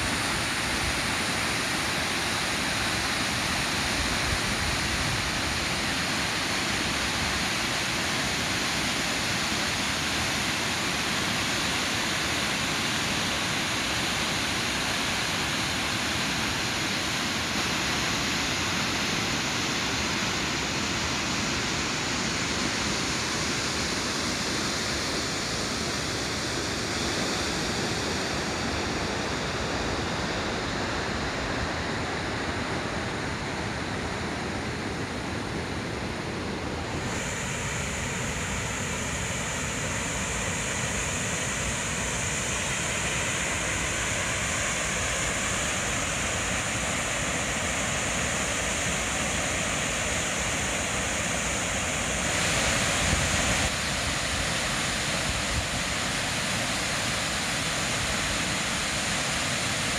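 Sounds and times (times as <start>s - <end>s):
waterfall rushing: 35.3s - 59.9s.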